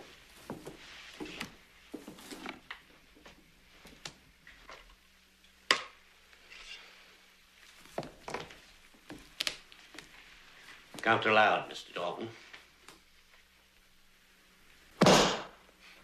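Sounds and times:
quiet shuffling: 0.0 - 5.2, 7.5 - 11.6.

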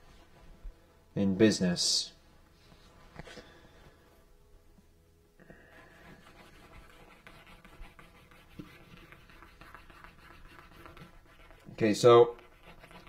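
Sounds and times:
burnisher rubbing leather edge: 12.3 - 13.0.

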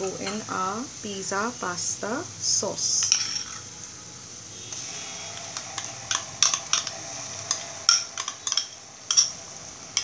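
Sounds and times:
food sizzling in oil: 0.0 - 10.0
spoon scraping wok: 3.0 - 3.7, 4.6 - 10.0.

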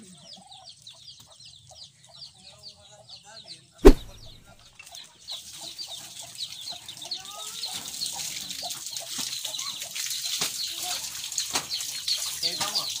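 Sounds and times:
sharp knock: 3.8 - 4.4.

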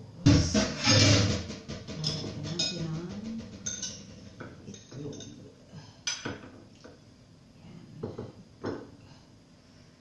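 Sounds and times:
dishes and cutlery clinking: 3.6 - 7.0.

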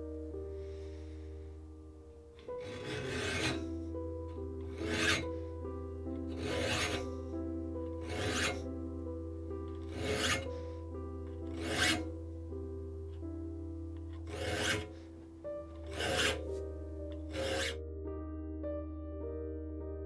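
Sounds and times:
background music: 0.0 - 20.0
file rasping on saw teeth: 2.4 - 3.7, 4.7 - 5.4, 6.3 - 7.2, 7.9 - 8.7, 9.8 - 10.6, 11.4 - 12.1, 14.2 - 15.0, 15.8 - 16.6, 17.2 - 17.8.

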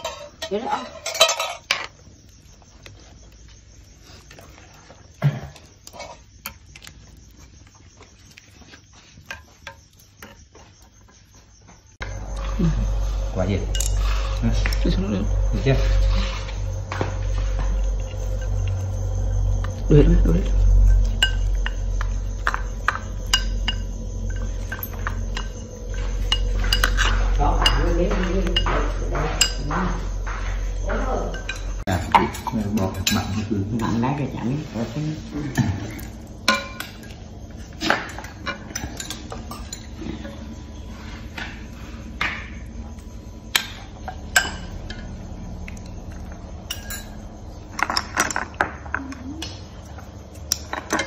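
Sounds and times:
chopsticks clinking against metal pot: 20.9 - 29.7, 31.3 - 34.1.

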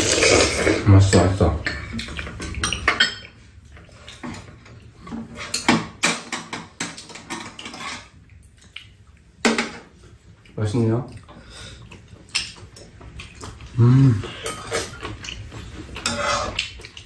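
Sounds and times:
metal utensils clinking on bowls: 0.0 - 3.4, 4.0 - 8.6, 16.0 - 17.0.

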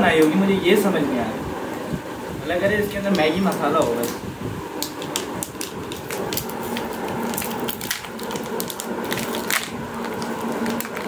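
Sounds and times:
packaging crinkling and crackling: 4.8 - 11.0.

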